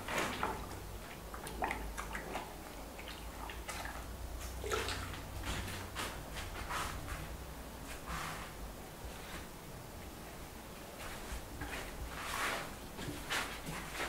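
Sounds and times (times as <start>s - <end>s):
hand sloshing liquid in bucket: 0.0s - 7.3s.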